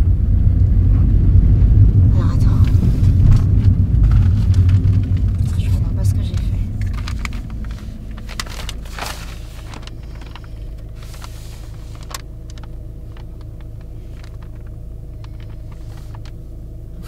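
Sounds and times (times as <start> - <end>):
car road noise rumble: 0.0 - 17.0
small clicks and rattles: 6.2 - 16.4.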